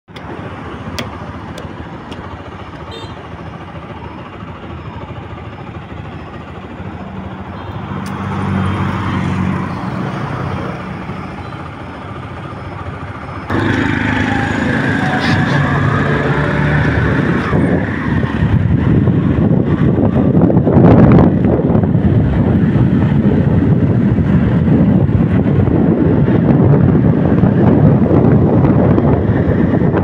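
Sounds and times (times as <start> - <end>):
motorcycle engine hum: 0.1 - 30.0
road noise: 0.1 - 30.0
rushing wind: 0.1 - 30.0.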